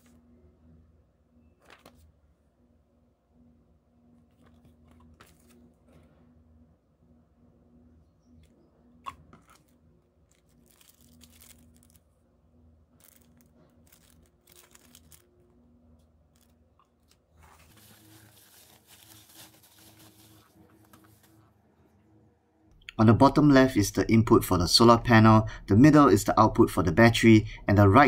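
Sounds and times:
plastic packaging crinkling: 0:09.1 - 0:12.2, 0:12.9 - 0:15.6, 0:16.3 - 0:21.3
bubble wrap crinkling: 0:09.3 - 0:12.2, 0:12.9 - 0:21.4.

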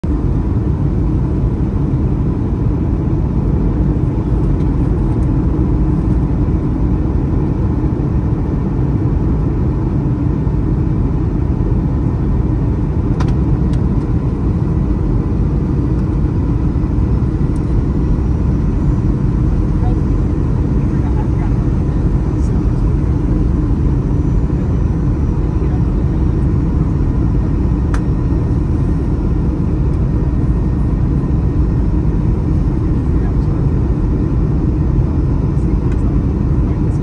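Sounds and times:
faint steady whine: 0:00.0 - 0:37.0
jet engine cabin rumble: 0:00.0 - 0:37.0.

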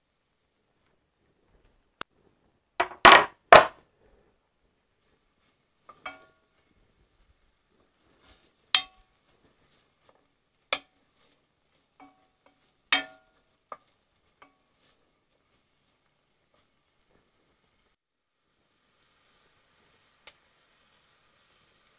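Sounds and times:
wooden spoon knocking on cast iron pot: 0:02.8 - 0:03.8, 0:05.9 - 0:06.4, 0:08.8 - 0:09.1, 0:10.0 - 0:11.0, 0:12.0 - 0:14.6.

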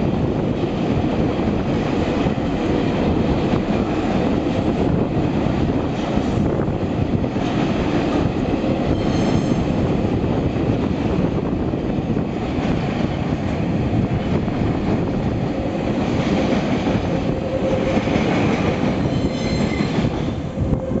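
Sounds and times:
freight train wheels rumbling: 0:00.0 - 0:21.0
train wheel squeal: 0:08.9 - 0:09.8, 0:18.9 - 0:20.6.

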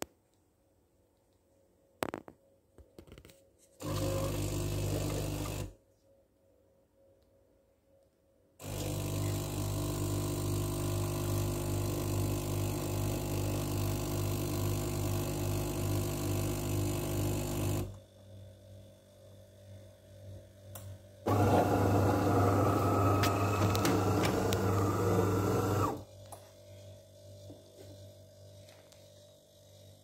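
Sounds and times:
espresso machine pump humming: 0:03.8 - 0:05.7, 0:08.6 - 0:18.0, 0:21.3 - 0:26.1
machine whirr: 0:21.3 - 0:26.0.

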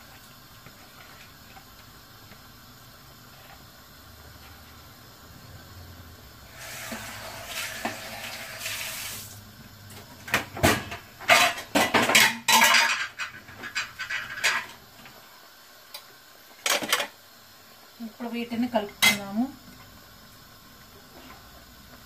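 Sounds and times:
dishes and utensils clattering: 0:10.7 - 0:14.7.

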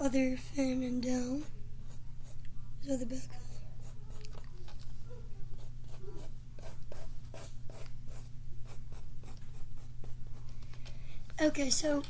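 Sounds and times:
steady low hum: 0:00.0 - 0:12.0
pencil scratching on paper: 0:01.4 - 0:02.5, 0:03.4 - 0:04.4, 0:05.6 - 0:10.5.

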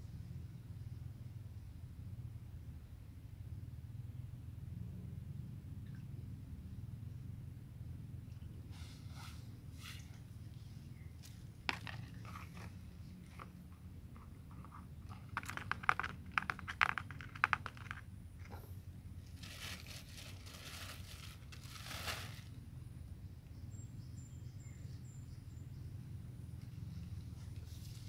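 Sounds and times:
plastic bag crinkling: 0:19.4 - 0:22.5.

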